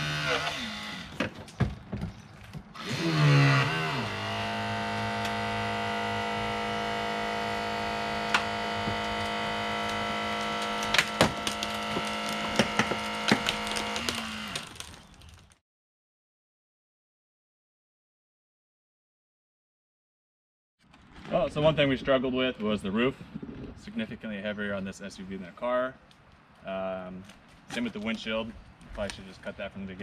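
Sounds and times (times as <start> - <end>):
powered rescue tool motor: 0.0 - 1.2, 2.8 - 15.1
material cracking and snapping: 8.3 - 15.6.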